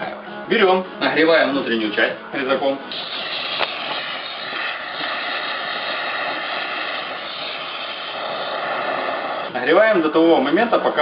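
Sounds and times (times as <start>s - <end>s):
cutting torch flame hissing: 2.9s - 9.9s.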